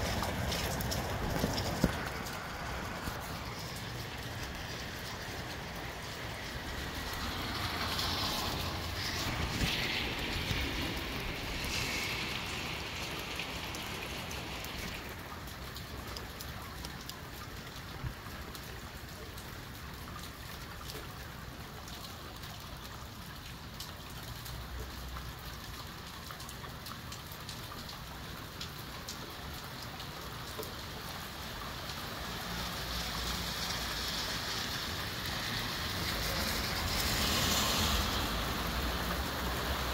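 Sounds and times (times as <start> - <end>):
rain hissing: 0.0 - 19.7, 27.5 - 39.9
low rumble of wind: 0.0 - 21.9
raindrops ticking: 0.0 - 39.9.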